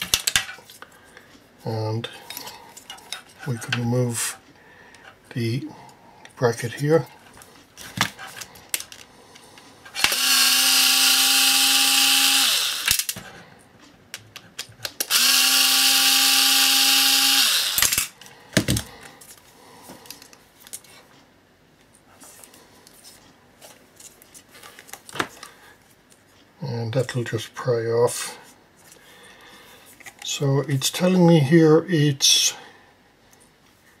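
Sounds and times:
small clicks and handling rattles: 8.3 - 9.6
electric screwdriver motor whine: 10.0 - 13.2, 15.0 - 18.1.

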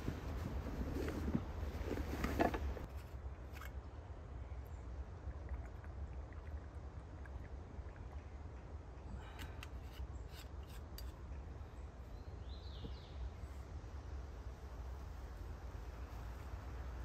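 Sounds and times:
low wind rumble: 0.0 - 10.4.

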